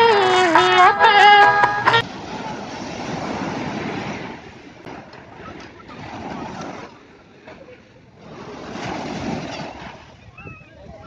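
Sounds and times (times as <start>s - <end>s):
small waves breaking on sand: 2.0s - 10.4s.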